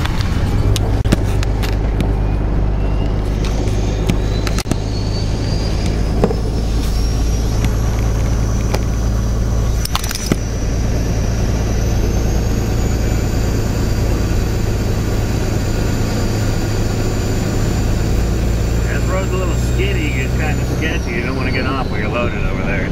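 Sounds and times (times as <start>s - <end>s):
truck engine running: 0.0s - 22.9s
tyre and road noise: 0.0s - 22.9s
faint high whine: 2.0s - 22.9s
clicks or rattles: 9.8s - 10.4s.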